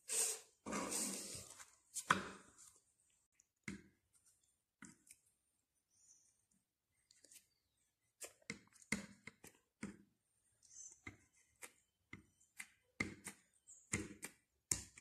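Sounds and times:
fork tapping and scraping paper: 8.2 - 10.1, 10.9 - 15.0.

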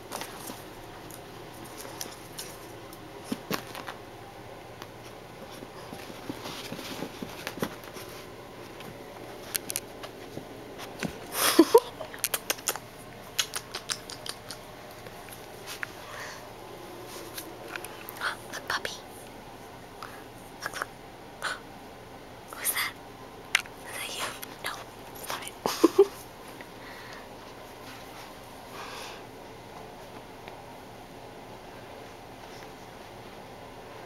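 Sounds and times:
puppies tapping and scuffing: 4.8 - 11.3.

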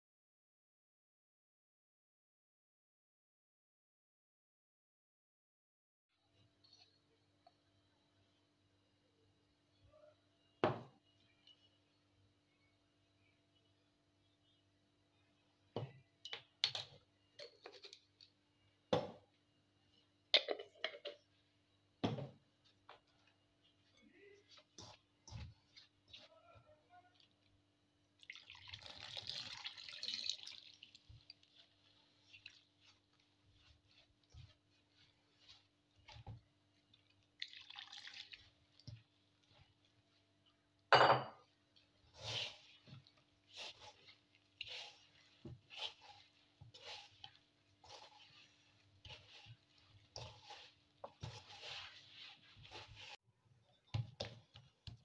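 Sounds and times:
hand squelching damp dough: 22.6 - 53.2.

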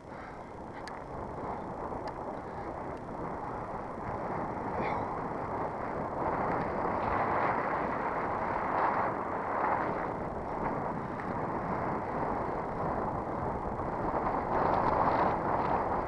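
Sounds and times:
bicycle road noise: 0.0 - 16.0.

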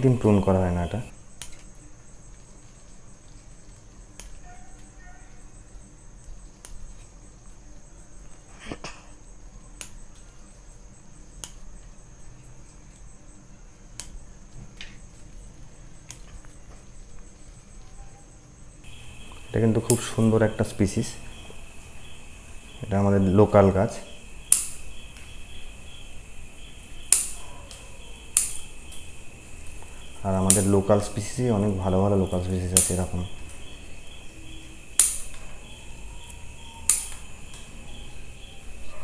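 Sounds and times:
steady high-pitched tone: 18.9 - 27.4
pruning scissors snipping: 28.3 - 29.0.

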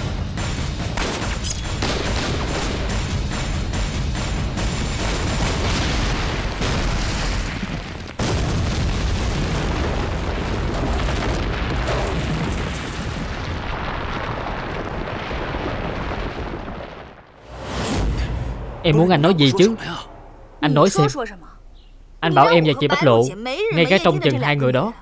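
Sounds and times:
grenade explosion: 0.0 - 19.2
long low rumble: 17.6 - 24.3.

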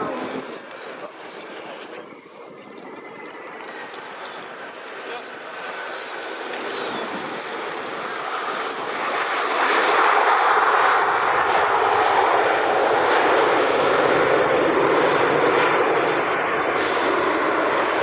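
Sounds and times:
airliner engines roaring: 0.0 - 18.0.

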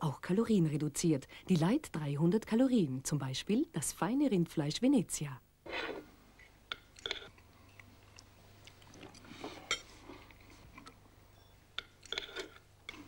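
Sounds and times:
person chewing: 5.7 - 11.0, 11.8 - 13.0
knife and fork on china plate: 11.8 - 13.0.

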